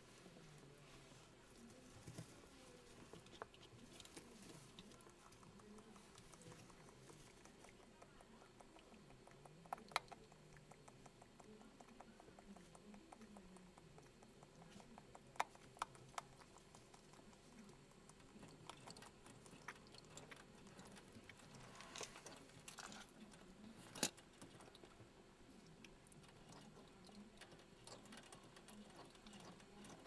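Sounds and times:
guinea pig drinking and chewing: 0.0 - 30.0.

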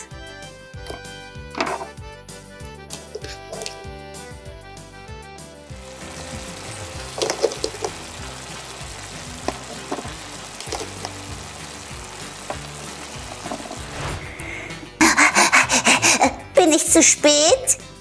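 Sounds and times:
background music: 0.0 - 18.0
sizzling frying sound effect: 5.7 - 17.0.

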